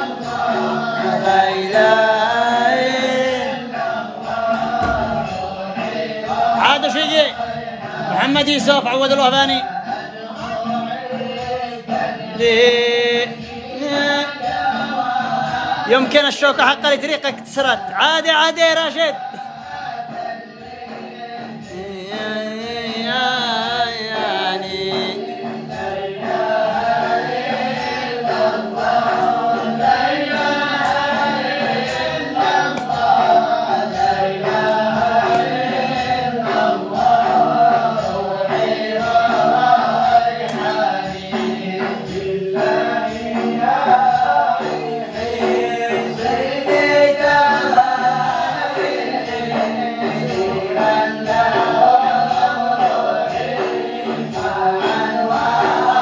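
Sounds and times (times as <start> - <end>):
group of voices chanting: 0.0 - 21.7, 22.8 - 56.0
steady low beat: 1.2 - 7.3.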